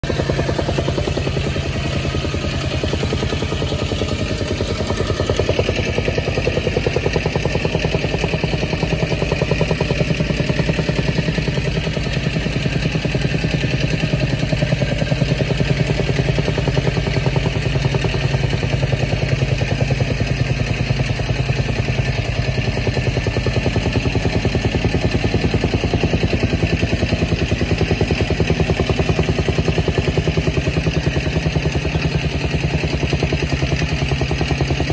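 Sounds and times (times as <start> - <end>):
engine idling: 0.0 - 34.9.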